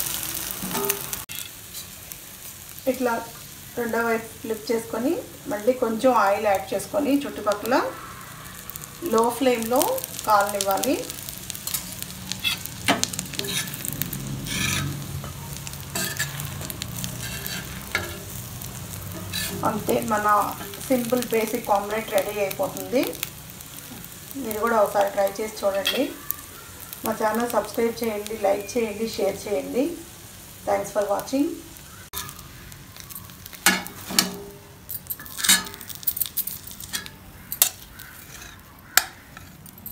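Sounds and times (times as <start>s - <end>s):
omelette sizzling in oil: 0.0s - 39.9s
metal spatula scraping a pan: 0.5s - 2.0s, 8.7s - 23.2s, 24.0s - 26.2s, 32.1s - 39.9s.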